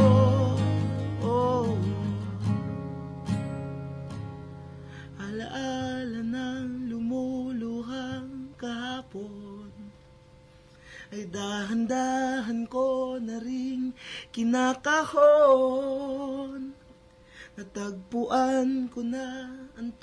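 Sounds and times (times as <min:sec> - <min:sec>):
man singing a slow ballad: 0:00.0 - 0:02.6, 0:05.1 - 0:10.0, 0:11.0 - 0:16.8, 0:17.5 - 0:20.0
acoustic guitar: 0:00.0 - 0:20.0.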